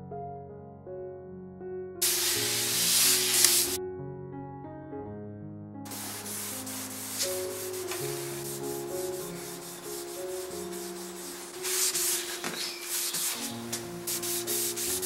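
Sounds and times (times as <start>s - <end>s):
background music: 0.0s - 15.0s
cloth rag rubbing wood: 2.0s - 3.8s, 5.9s - 15.0s.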